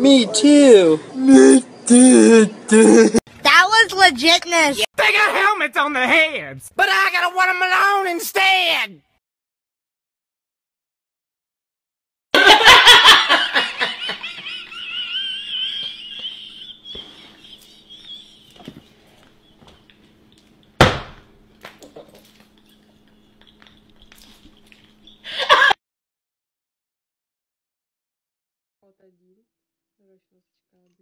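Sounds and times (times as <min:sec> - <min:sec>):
man laughing loudly: 0:12.4 - 0:18.8, 0:25.2 - 0:25.8
sharp knock: 0:20.8 - 0:21.2.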